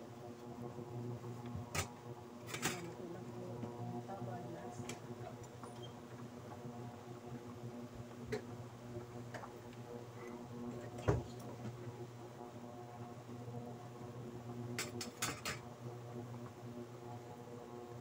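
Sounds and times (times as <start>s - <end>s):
electrical hum of cooker: 0.0s - 18.0s.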